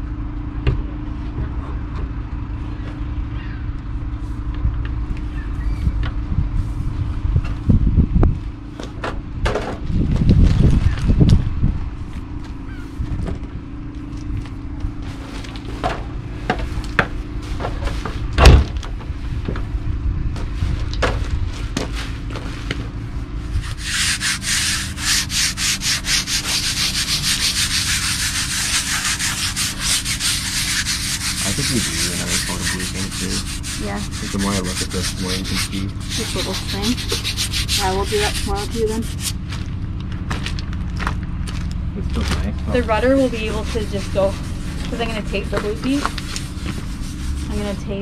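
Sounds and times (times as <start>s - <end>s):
loud thump: 18.4s - 18.8s
sanding disc rubbing paint: 23.4s - 39.5s, 42.6s - 48.0s.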